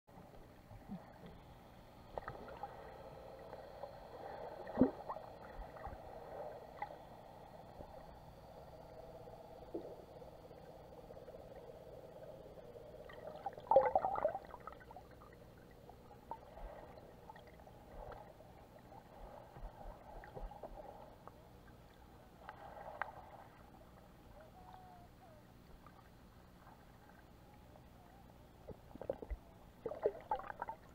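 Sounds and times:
faint underwater hum: 0.1 - 30.9.

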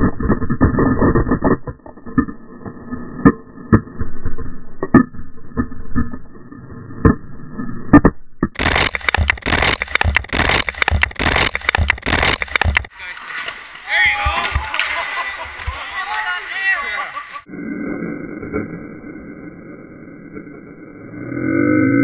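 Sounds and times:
muffled sharp cracks and knocks: 8.5 - 12.9
broken glass crunching: 8.6 - 12.9.

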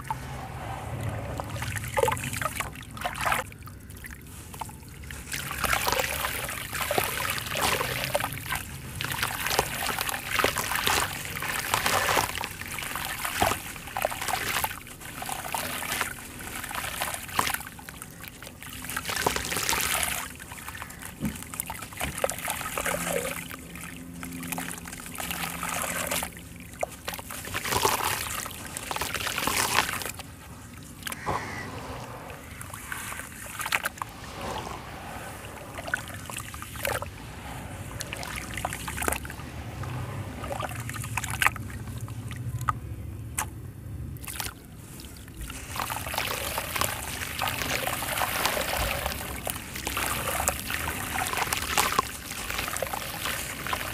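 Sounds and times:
sand trickling into water: 0.0 - 42.7, 44.2 - 53.9
hands sloshing wet mud: 0.0 - 42.8, 44.2 - 53.9.

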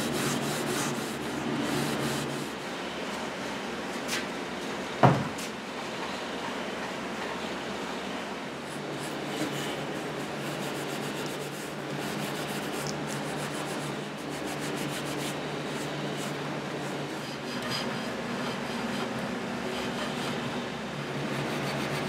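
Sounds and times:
steel wool rubbing on wood: 0.0 - 2.5, 8.8 - 22.0
box fan humming: 0.0 - 22.0.

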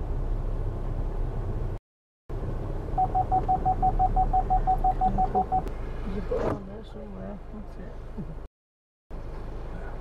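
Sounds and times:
low engine and road hum: 0.0 - 8.5, 9.1 - 10.0
parking sensor beeping rapidly: 3.0 - 5.7.

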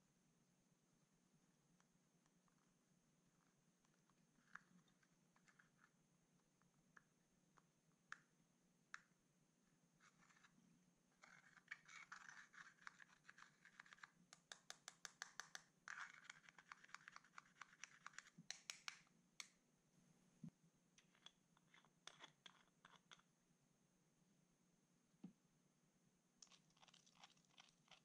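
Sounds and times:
pick scratching powder: 11.2 - 18.9, 21.0 - 23.2.

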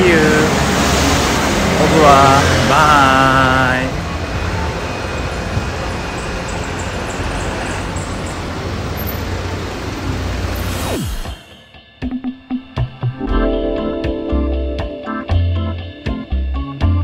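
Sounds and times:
roadside traffic rumble and hiss: 0.0 - 11.3.

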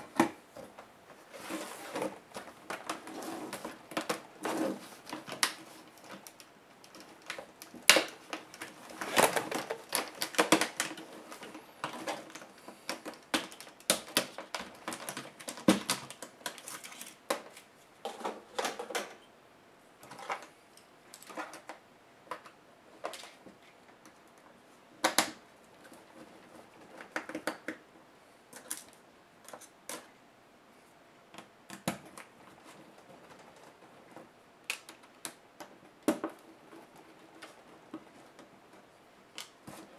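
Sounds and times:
plastic clips clicking and snapping: 34.6 - 36.4.

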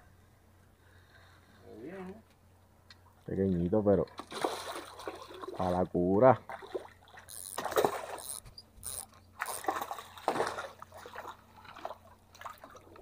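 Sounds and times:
fish splashing at water surface: 4.1 - 5.6, 6.5 - 13.0.

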